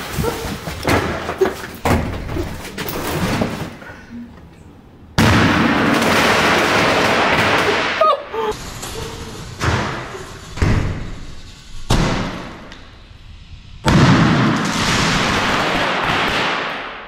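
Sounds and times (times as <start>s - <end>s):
loud continuous noise: 0.0s - 15.7s
firework blast: 5.2s - 8.0s, 8.6s - 17.0s.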